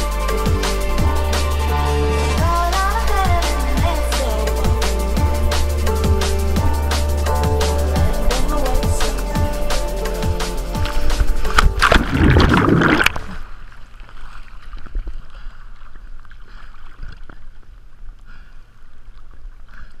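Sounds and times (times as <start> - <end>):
rush of wind and water: 10.8 - 20.0.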